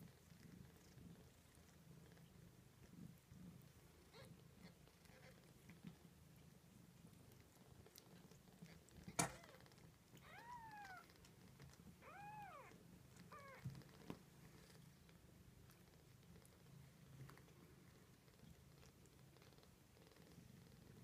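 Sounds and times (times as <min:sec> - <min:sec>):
faint low purr: 0:00.0 - 0:21.0.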